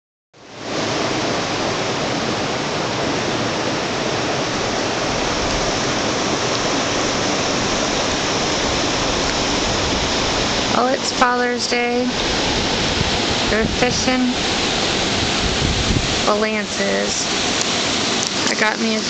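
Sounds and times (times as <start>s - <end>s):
river rushing over boulders: 0.4s - 19.0s.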